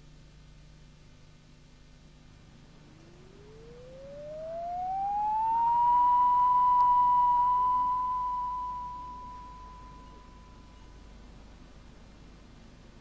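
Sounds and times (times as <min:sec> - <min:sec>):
electronic tone sliding up: 0:02.8 - 0:10.8.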